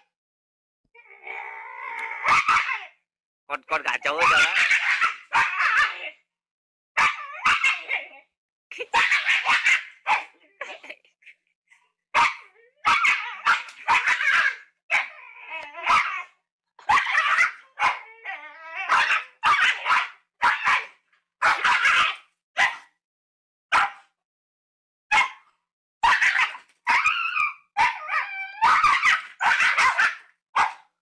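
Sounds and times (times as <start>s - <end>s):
dog barking: 2.2s - 2.9s, 4.2s - 6.2s, 7.0s - 8.1s, 8.9s - 10.4s, 12.1s - 15.1s, 15.8s - 18.1s, 18.8s - 23.0s, 23.7s - 24.1s, 25.1s - 31.0s.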